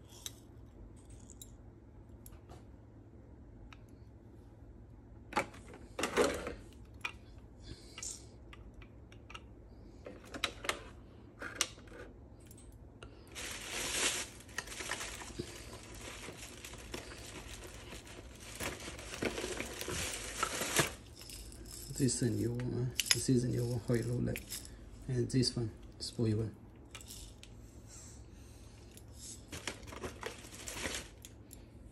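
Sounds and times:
plastic bags crinkling: 13.2s - 24.8s, 29.4s - 31.3s.

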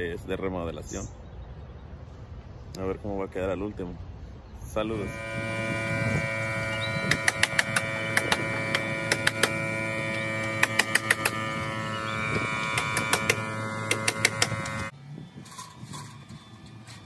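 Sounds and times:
machine hum: 4.8s - 17.0s
hammer striking nails: 7.1s - 9.6s, 10.5s - 11.4s, 12.7s - 14.8s.

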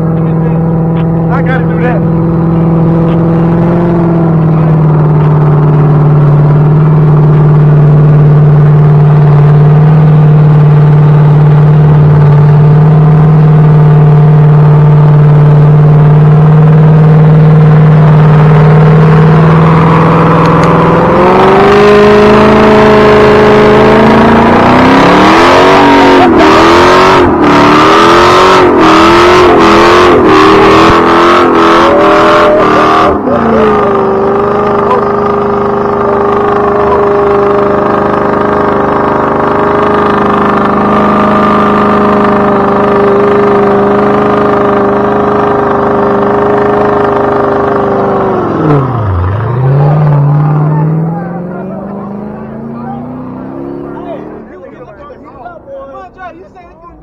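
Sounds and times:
car engine revving in burnout: 0.0s - 57.0s.

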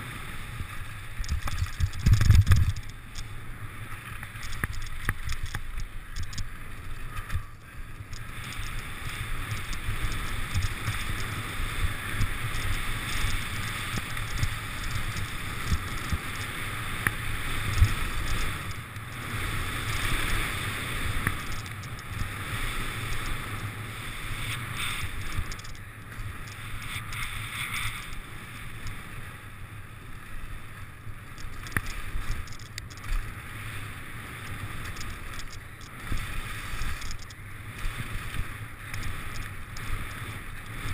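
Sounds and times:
bike rattling: 0.0s - 40.9s
wind on microphone: 0.6s - 3.3s, 4.3s - 28.5s.

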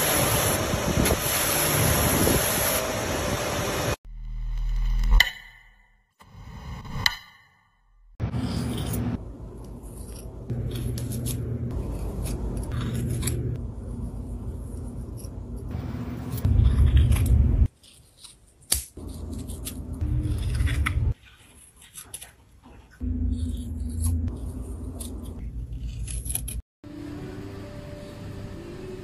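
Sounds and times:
low rumble: 16.4s - 17.7s.

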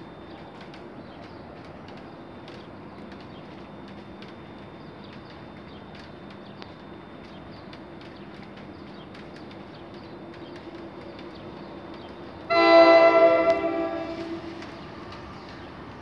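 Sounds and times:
locomotive multi-chime horn: 12.5s - 14.8s.

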